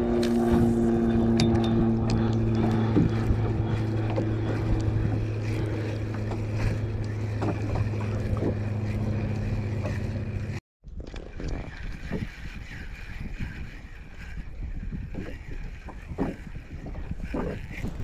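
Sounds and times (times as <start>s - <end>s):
small boat motor humming: 0.0s - 18.0s
water noise: 0.0s - 18.0s
wind: 0.0s - 18.0s.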